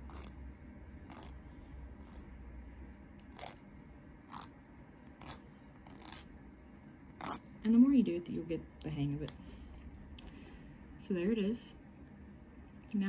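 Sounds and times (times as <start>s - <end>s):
nail file scraping fingernail: 0.0s - 0.4s, 1.1s - 1.4s, 2.0s - 2.3s, 3.2s - 3.6s, 4.3s - 4.5s, 5.1s - 6.3s, 7.2s - 7.5s.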